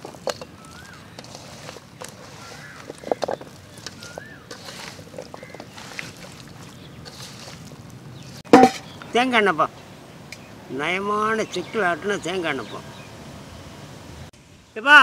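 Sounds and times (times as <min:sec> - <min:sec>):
hand squishing wet food: 0:00.0 - 0:08.5.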